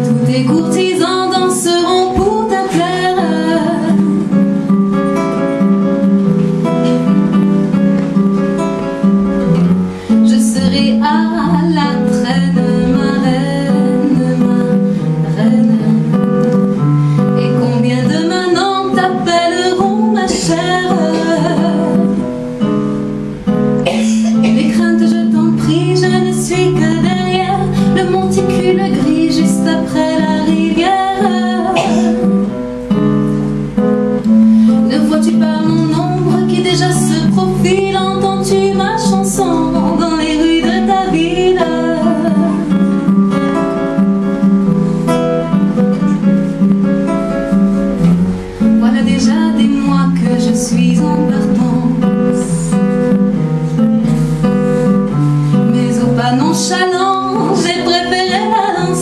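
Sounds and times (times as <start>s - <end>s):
woman singing: 0.0s - 5.0s, 10.1s - 16.6s, 17.2s - 22.3s, 24.3s - 32.6s, 34.3s - 43.3s, 48.6s - 53.0s, 55.5s - 59.0s
classical guitar bossa nova: 0.0s - 59.0s.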